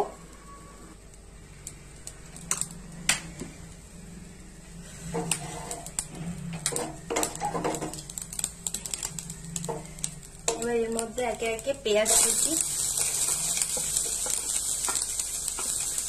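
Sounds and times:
wooden spatula scraping pan: 4.8s - 6.0s.

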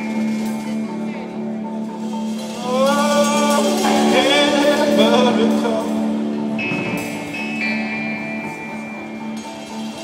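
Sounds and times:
person singing: 2.5s - 6.3s.

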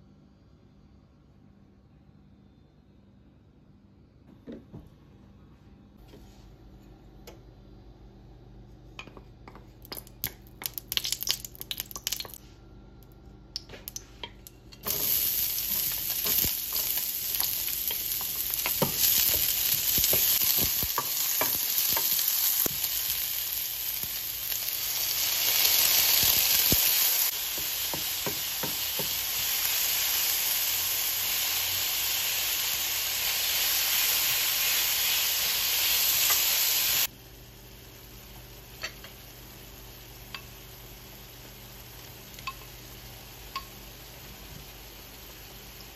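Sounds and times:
onion sizzling in hot oil: 9.8s - 12.4s, 13.9s - 45.9s.

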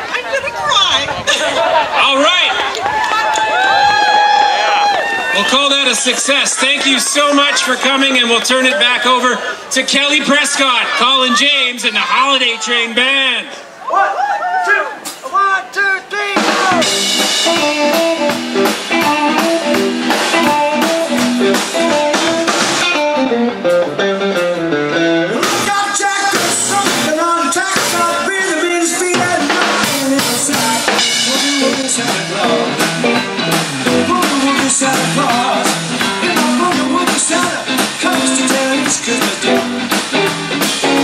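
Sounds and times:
blues-rock band playing: 0.0s - 12.7s, 16.3s - 41.0s
electric guitar melody: 16.4s - 41.0s.

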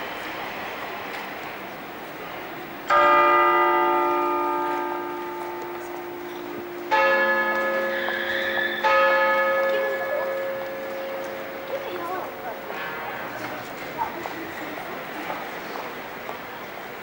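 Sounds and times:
low street noise murmur: 0.0s - 17.0s
church bells ringing: 2.8s - 15.1s.

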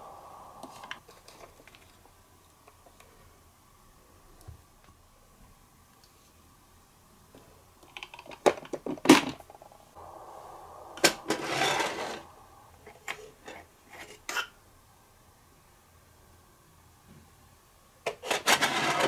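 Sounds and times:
tiny sliding door scraping: 11.3s - 12.2s.

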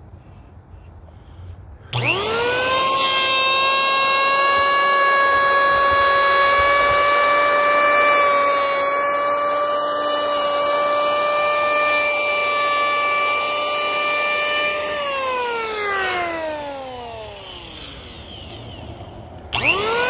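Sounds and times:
electric planer whining: 1.9s - 20.0s.

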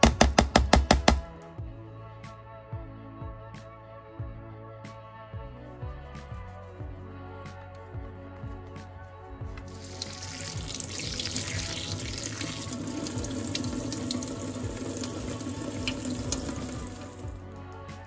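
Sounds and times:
background music: 0.0s - 18.0s
tap water splashing into sink: 9.6s - 17.3s.

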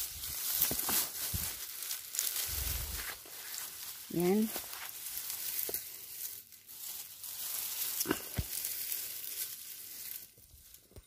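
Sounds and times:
dry leaves rustling and crackling: 0.0s - 11.0s.

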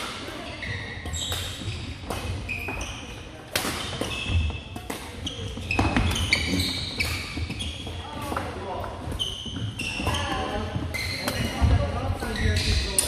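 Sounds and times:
rackets hitting shuttlecock: 0.0s - 13.0s
shoes squeaking on gym floor: 0.2s - 13.0s.

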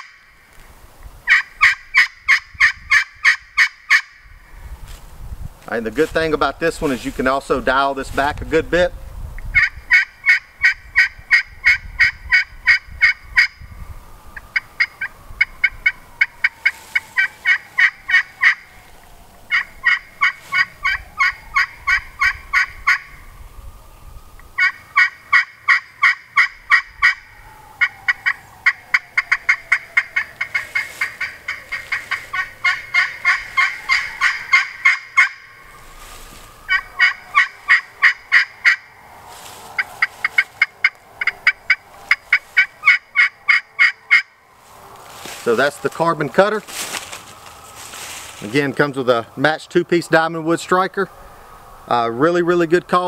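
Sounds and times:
turkey call yelps: 0.0s - 0.3s, 1.3s - 4.3s, 9.6s - 13.6s, 14.4s - 18.8s, 19.5s - 23.2s, 24.6s - 44.4s
striker scratching pot call: 14.6s - 18.7s, 36.7s - 38.8s.

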